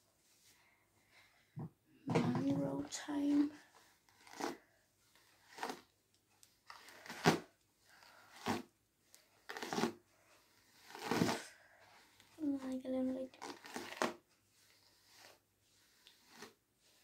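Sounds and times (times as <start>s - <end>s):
hairbrush swishing through hair: 9.5s - 12.2s, 13.4s - 17.0s.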